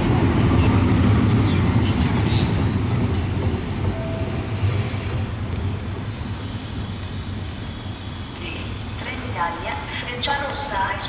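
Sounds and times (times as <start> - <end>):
electric train rumbling: 0.0 - 11.0
brake squeal: 4.2 - 9.3
short hiss: 4.4 - 5.3.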